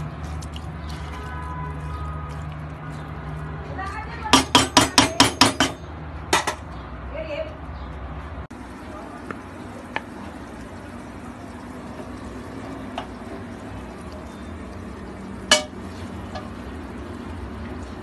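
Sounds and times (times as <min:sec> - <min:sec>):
spoon clinking on pot: 0:15.5 - 0:15.8.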